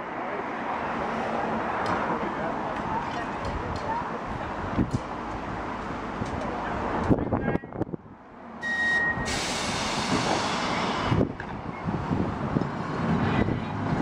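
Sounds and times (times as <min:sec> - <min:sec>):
outdoor rumble of crowd: 0:00.0 - 0:14.0
short high beep: 0:08.6 - 0:09.6.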